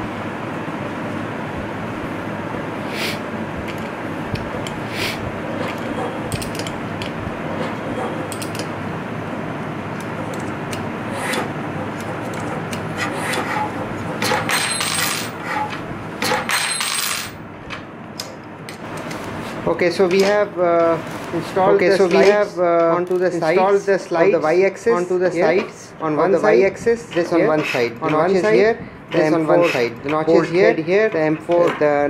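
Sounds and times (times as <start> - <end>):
steady background noise: 0.0 - 32.0.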